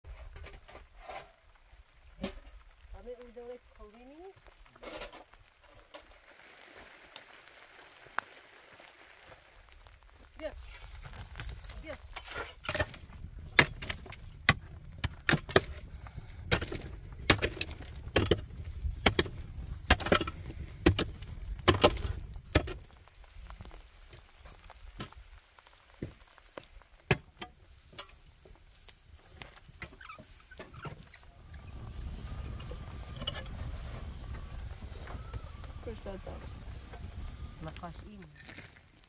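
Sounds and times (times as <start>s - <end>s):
low rumble: 31.2s - 38.4s.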